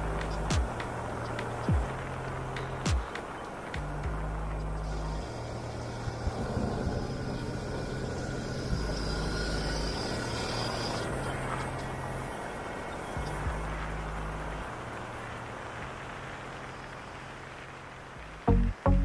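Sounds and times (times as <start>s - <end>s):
atv engine running: 0.0s - 3.2s, 3.8s - 12.4s.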